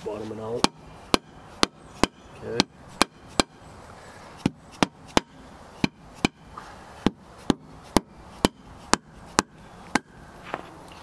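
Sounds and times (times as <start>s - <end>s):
hammer striking metal plate: 0.6s - 3.5s, 4.8s - 6.4s.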